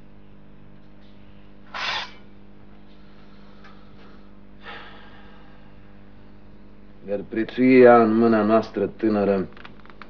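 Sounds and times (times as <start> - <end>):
steady low hum: 0.0 - 10.0
short hiss of noise: 1.7 - 2.2.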